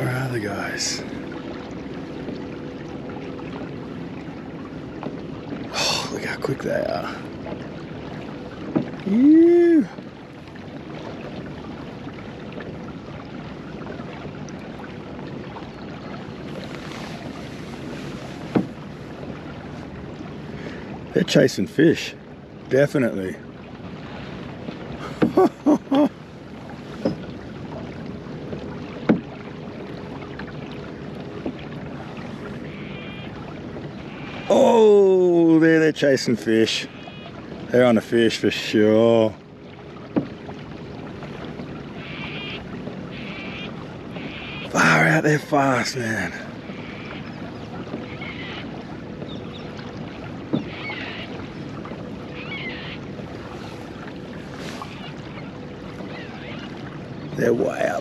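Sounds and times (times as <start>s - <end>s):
water against kayak hull: 0.0s - 58.0s
short knocks: 18.4s - 19.4s, 29.0s - 29.4s.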